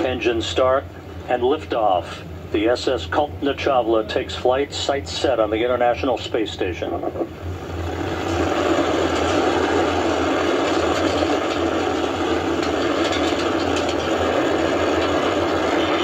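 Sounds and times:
crackling rocket engine roar: 0.0 - 16.0
deep rumble: 6.8 - 16.0.

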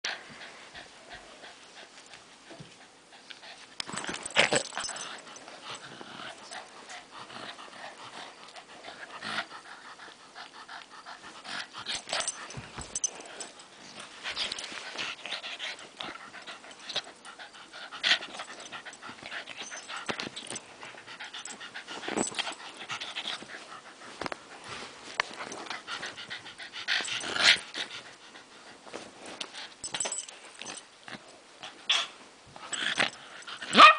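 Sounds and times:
dog panting and wheezing: 0.1 - 30.8.

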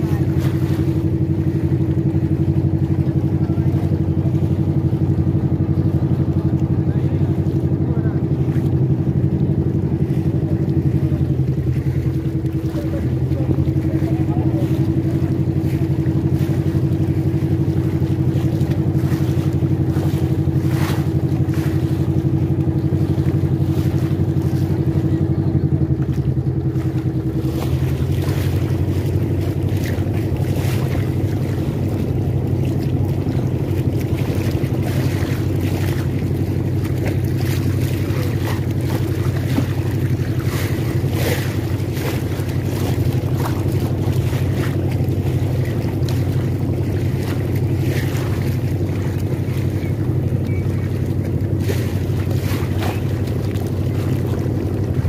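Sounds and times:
motorboat engine humming: 0.0 - 55.0.

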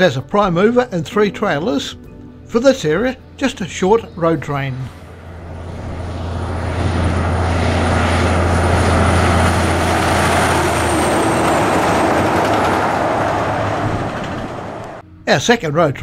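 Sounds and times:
faint high whine: 4.7 - 12.3
truck passing at speed: 4.7 - 15.0.

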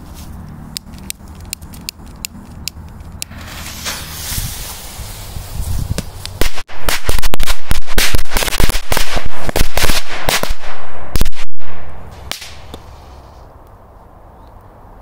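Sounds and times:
firecrackers banging: 1.3 - 13.0.

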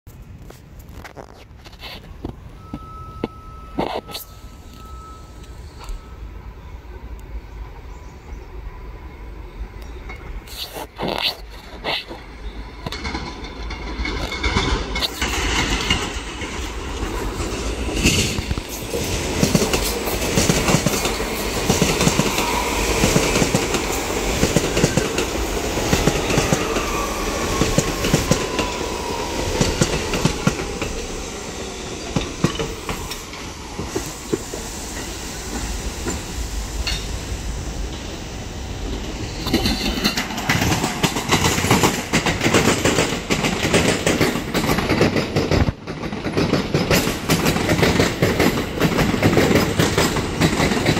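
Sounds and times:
train rumble: 0.1 - 50.9
train whine falling in pitch: 2.2 - 10.4, 12.2 - 43.0
wheels clacking over rail joints: 10.0 - 38.2, 38.8 - 50.9.

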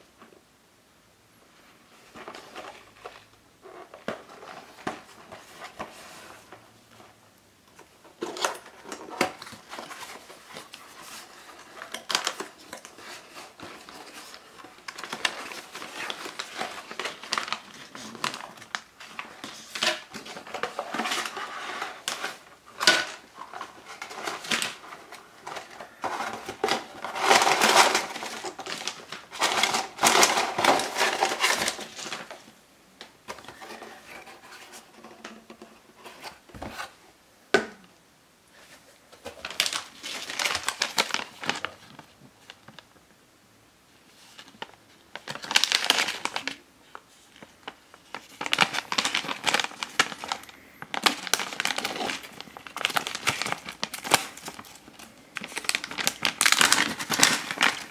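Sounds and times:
plastic pouches crinkling: 8.2 - 32.5, 39.1 - 42.9, 44.2 - 57.9
cardboard being handled: 51.0 - 57.9.

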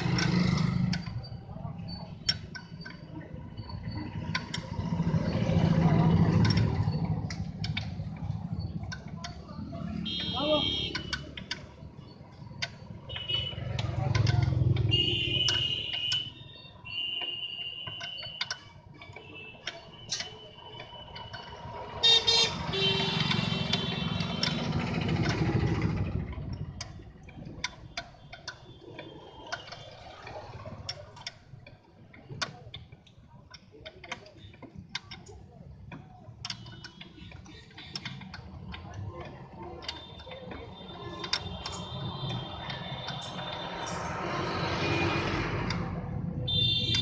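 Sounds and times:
passing road traffic: 0.0 - 47.0
clicks and taps on engine hoses: 4.0 - 47.0
vehicle horns honking: 9.9 - 11.2, 13.1 - 13.7, 14.8 - 18.2, 22.0 - 24.6, 46.5 - 47.0.

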